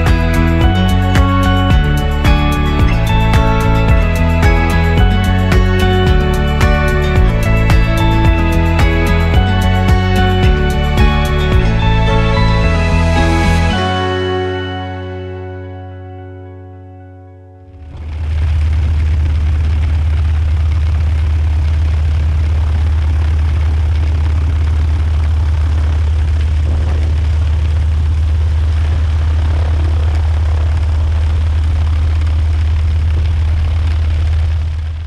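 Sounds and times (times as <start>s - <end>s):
propeller aircraft engine droning: 17.6s - 35.0s.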